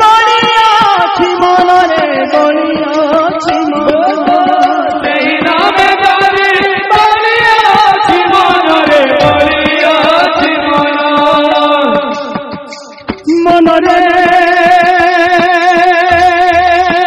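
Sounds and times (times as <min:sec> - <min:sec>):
instrumental accompaniment: 0:00.0 - 0:17.0
sharp percussion strikes: 0:00.0 - 0:17.0.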